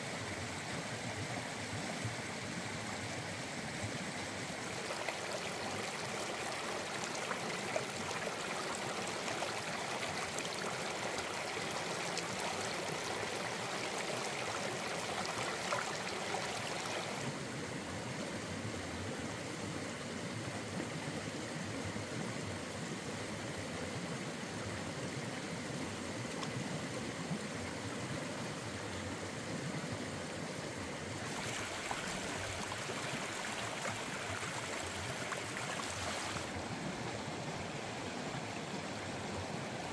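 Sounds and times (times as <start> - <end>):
stream rushing over stones: 0.2 - 17.8, 30.1 - 39.9.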